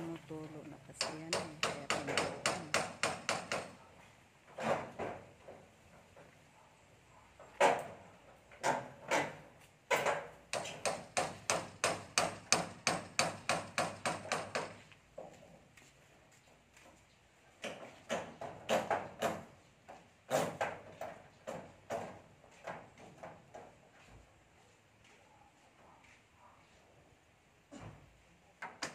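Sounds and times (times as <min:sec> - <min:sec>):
hammers nailing metal roof sheets: 0:01.0 - 0:03.8, 0:04.6 - 0:05.3, 0:08.6 - 0:14.9, 0:17.7 - 0:19.6, 0:20.3 - 0:23.6.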